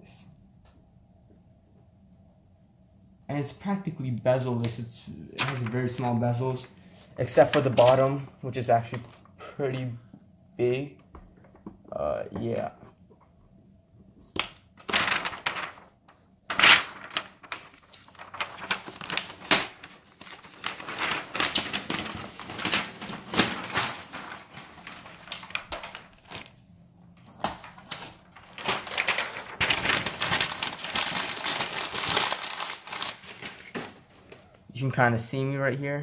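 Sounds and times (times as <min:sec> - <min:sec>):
plastic wrap crinkling: 0:07.2 - 0:09.4, 0:14.4 - 0:34.6.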